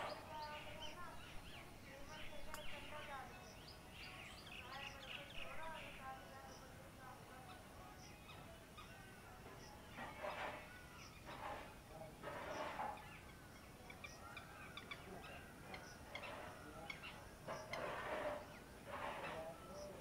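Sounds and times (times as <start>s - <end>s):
small birds chirping and peeping: 0.0s - 20.0s.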